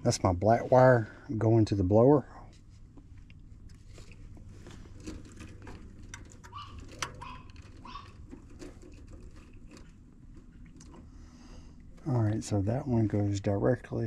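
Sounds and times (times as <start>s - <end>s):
steady low hum: 0.0s - 14.0s
light clicks and rustles: 2.4s - 12.4s.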